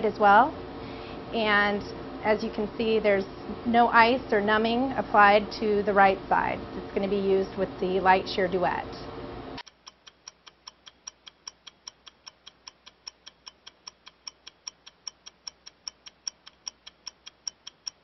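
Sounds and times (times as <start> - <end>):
rapid electronic ticking: 9.6 - 18.0.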